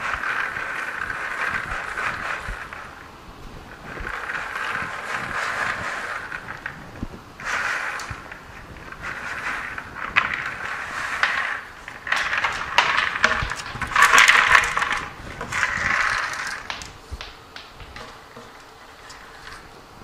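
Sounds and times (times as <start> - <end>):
seeds pouring onto trays: 3.8 - 6.8, 7.4 - 19.6.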